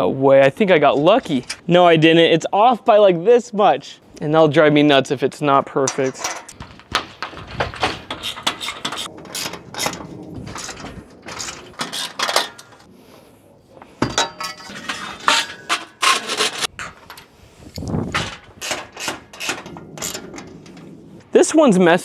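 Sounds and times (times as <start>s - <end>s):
metal parts clinking and knocking: 5.8s - 12.9s, 14.0s - 21.1s
panel knocking and scraping on rack: 5.9s - 12.9s, 18.1s - 21.2s.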